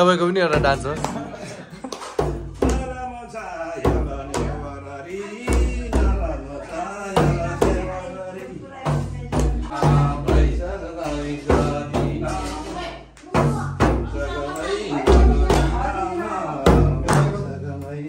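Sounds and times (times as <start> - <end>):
frame drum struck by hand: 0.5 - 1.4, 2.2 - 3.0, 3.8 - 4.8, 5.4 - 6.5, 7.1 - 8.0, 8.8 - 14.4, 15.0 - 17.5
person singing: 2.6 - 18.0.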